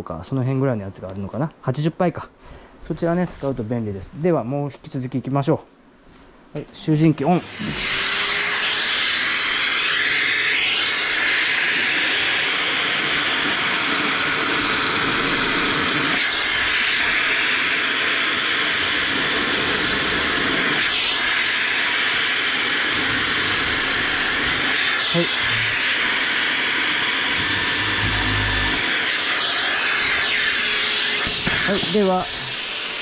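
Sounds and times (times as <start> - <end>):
dust extractor hissing: 7.2 - 33.0.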